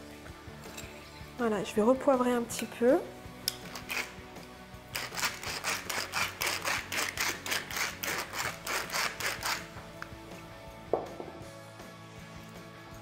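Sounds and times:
pepper mill grinding: 3.5 - 9.8.

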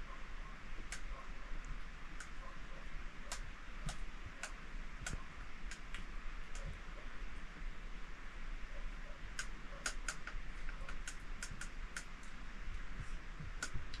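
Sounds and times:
steady hiss: 0.0 - 14.0
sharp clicks: 0.8 - 2.5, 3.2 - 6.8, 9.3 - 12.8, 13.4 - 14.0.

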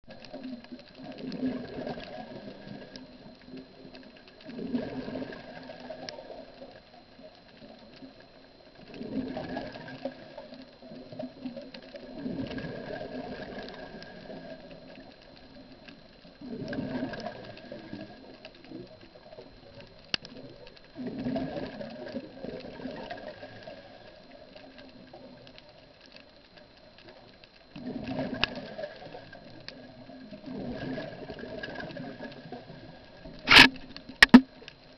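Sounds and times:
gurgling rush of bubbles: 1.1 - 2.9, 4.5 - 6.0.

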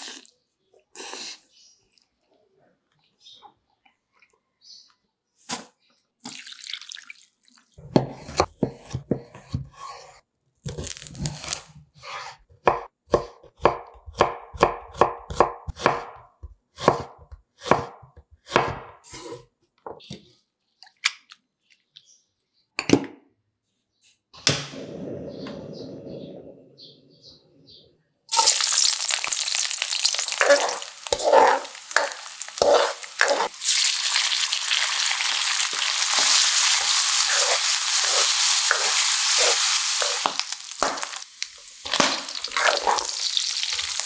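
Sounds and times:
knife chopping on cutting board: 7.8 - 10.1, 12.0 - 16.2, 16.8 - 19.4
gas burner rushing: 24.4 - 26.6.

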